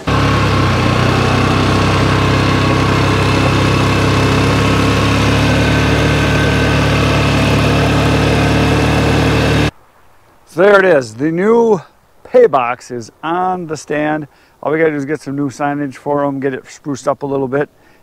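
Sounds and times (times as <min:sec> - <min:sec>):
atv engine running: 0:00.0 - 0:09.7.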